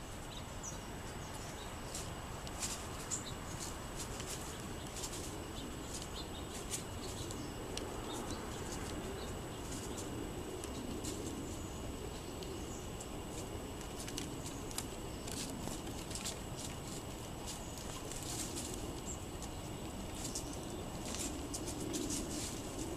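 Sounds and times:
low background hum: 0.0 - 22.9
songbirds chipping: 0.0 - 22.9.

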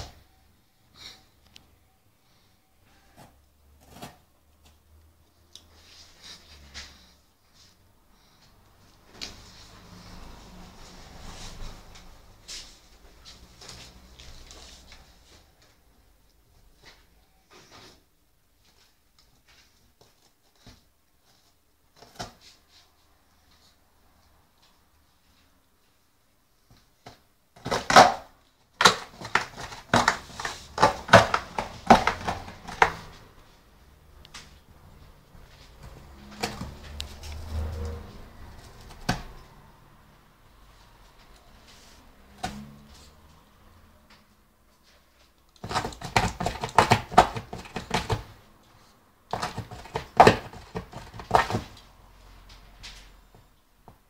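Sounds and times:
faint cardboard crackles: 26.6 - 33.6
dog chewing cardboard: 27.6 - 33.2, 35.8 - 39.4, 45.5 - 48.4, 49.3 - 51.8.

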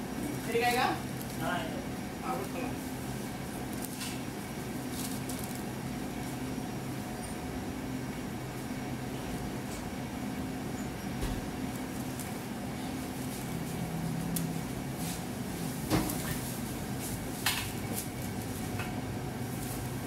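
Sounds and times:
low machine hum: 0.0 - 20.0
paper crinkling: 2.4 - 6.4.

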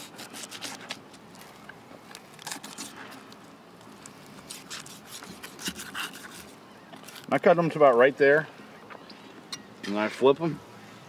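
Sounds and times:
knife cutting through fish bones: 0.0 - 1.0, 2.4 - 3.0, 4.4 - 6.6.

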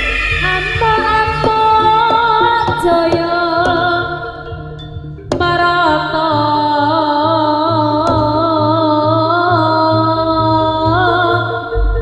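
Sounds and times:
pulsing low drum beat: 0.0 - 5.7, 11.8 - 12.0
wavering lead melody: 0.0 - 12.0.

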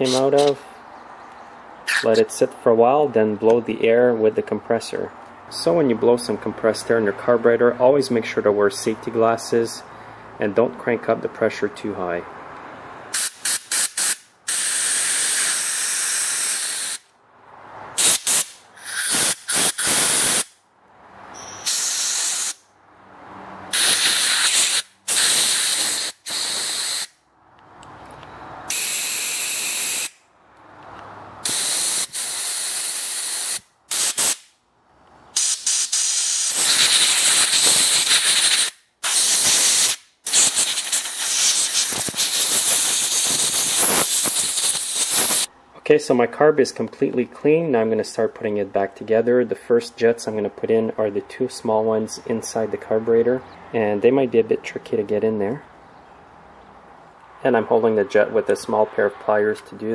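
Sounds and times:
compressed air blasts hissing: 0.0 - 0.7, 13.1 - 17.0, 17.9 - 20.6, 21.4 - 22.6, 23.7 - 27.1, 28.7 - 30.2, 31.4 - 34.5, 35.3 - 45.5.

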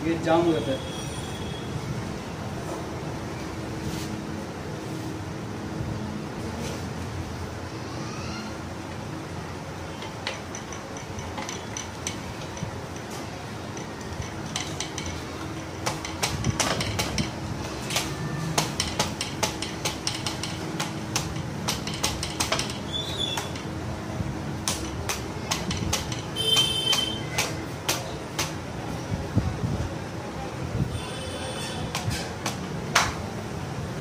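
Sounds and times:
steady background hum: 0.0 - 34.0
metallic clinks and knocks: 9.9 - 17.4, 18.6 - 22.9, 24.8 - 27.2.

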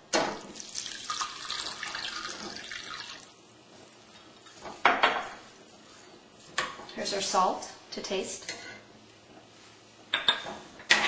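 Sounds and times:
water pouring into a pot: 0.6 - 3.4.

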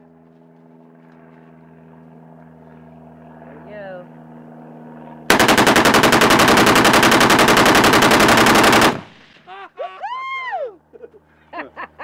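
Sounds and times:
automatic gunfire burst: 5.3 - 9.4.

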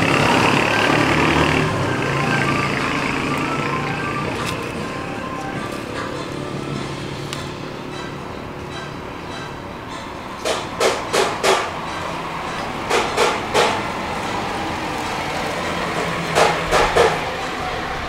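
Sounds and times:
sharp knocks: 10.4 - 13.8, 16.0 - 17.2.

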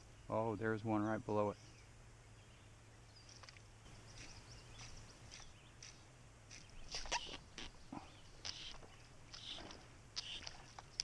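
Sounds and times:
faint outdoor background: 0.0 - 11.0
fish splashing and thrashing in water: 8.4 - 11.0.

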